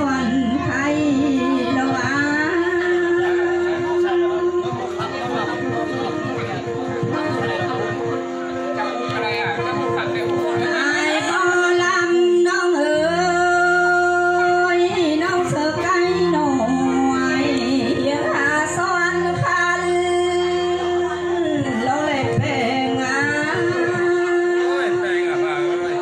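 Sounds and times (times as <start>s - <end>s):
woman singing folk song: 0.0s - 4.3s, 10.7s - 24.8s.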